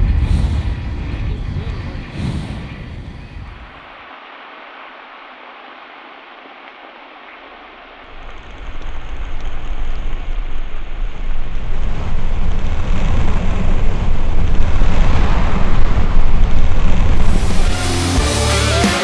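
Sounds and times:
gas fireball roaring: 0.0s - 3.9s, 8.1s - 18.2s.

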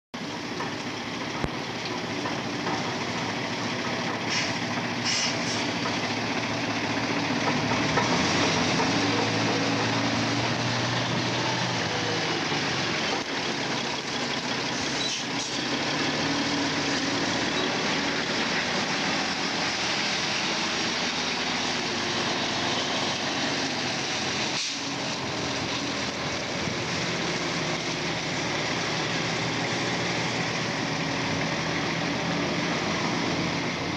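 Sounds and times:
diesel truck engine running: 0.2s - 33.9s
short hisses: 4.3s - 5.7s.

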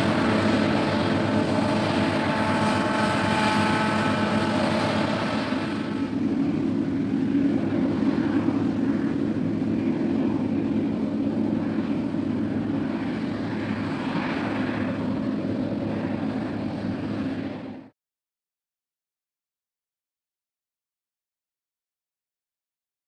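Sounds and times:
combine harvester running: 0.0s - 17.7s.

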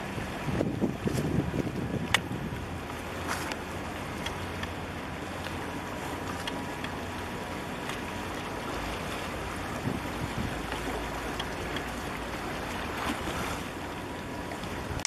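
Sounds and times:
wind on microphone: 0.0s - 4.2s, 9.0s - 11.7s
ship engine low rumble: 0.0s - 15.0s
water lapping along breakwater: 0.0s - 15.0s
faint ticks: 4.2s - 4.8s, 6.3s - 7.0s, 10.7s - 12.0s.

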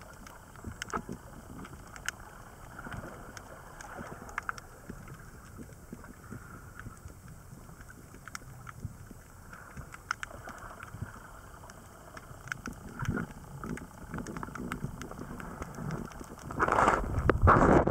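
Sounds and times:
faint clicks and crackles: 0.0s - 17.9s
low rumble of moving water: 0.0s - 17.9s
rush of water: 12.1s - 17.9s.

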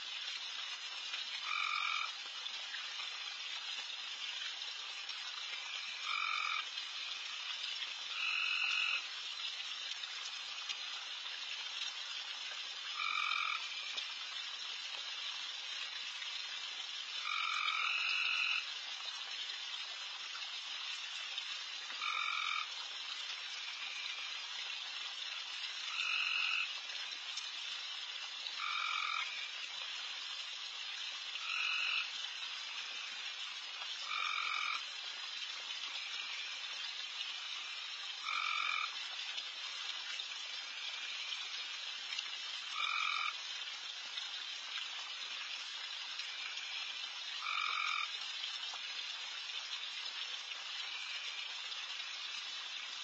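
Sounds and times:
nearby frog calling loudly: 1.4s - 2.1s, 5.8s - 6.7s, 13.0s - 13.9s, 22.0s - 22.7s, 28.6s - 29.5s, 34.0s - 34.8s, 38.2s - 38.9s, 42.7s - 43.4s, 47.4s - 48.1s
chorus of frogs calling: 1.4s - 2.2s, 5.6s - 6.7s, 8.1s - 9.1s, 12.9s - 14.0s, 17.2s - 18.7s, 22.0s - 22.7s, 25.8s - 26.7s, 28.6s - 29.5s, 31.4s - 32.1s, 34.0s - 34.8s, 38.2s - 39.0s, 42.7s - 43.4s, 47.4s - 48.1s.

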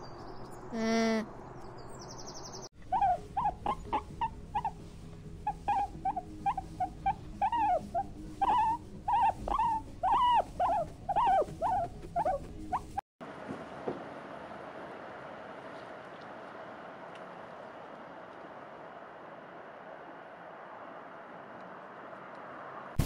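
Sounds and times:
piglets squealing: 2.8s - 4.8s, 5.5s - 13.0s.

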